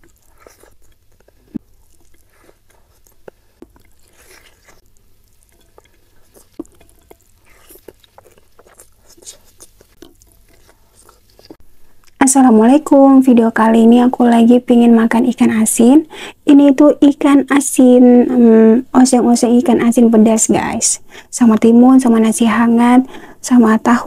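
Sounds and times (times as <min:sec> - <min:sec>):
soft chewing and mouth smacks: 0:00.0 - 0:12.2.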